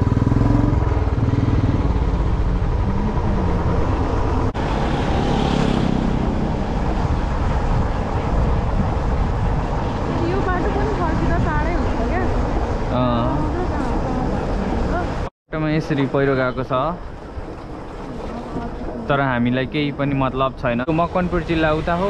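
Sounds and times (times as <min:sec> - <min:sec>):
motorcycle engine running: 0:00.0 - 0:07.0.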